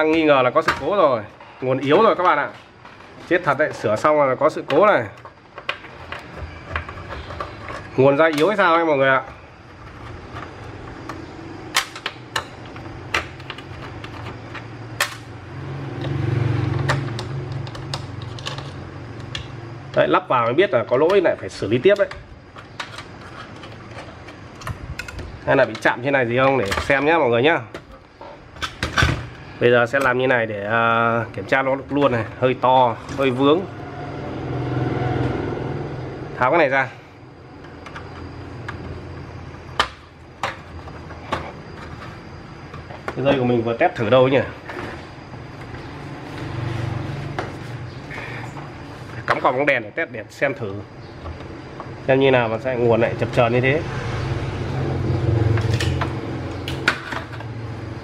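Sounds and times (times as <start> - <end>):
cooktop fan humming: 0.0 - 58.0
clicks and knocks of parts: 4.6 - 27.1, 27.7 - 30.2, 37.6 - 43.4, 55.5 - 57.6.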